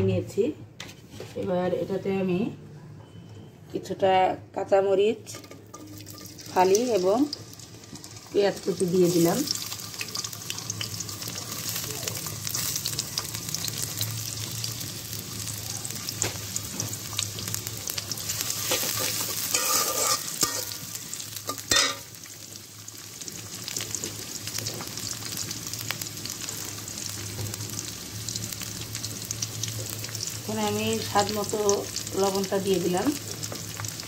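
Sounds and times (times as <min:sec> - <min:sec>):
metal spatula scraping pan: 0:05.3 - 0:06.8, 0:18.5 - 0:20.9
onions sizzling in hot oil: 0:05.3 - 0:34.0.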